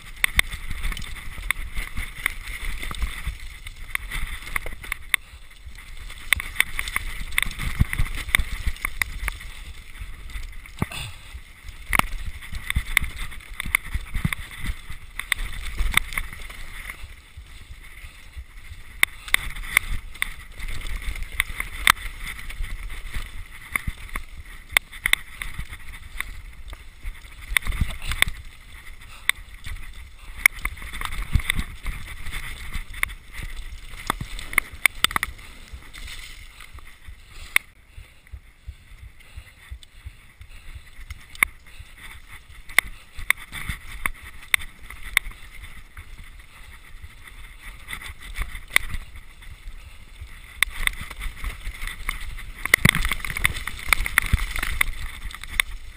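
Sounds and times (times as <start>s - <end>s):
bike knocking and clattering: 0.0s - 37.7s
tyre and wind rush: 0.0s - 55.9s.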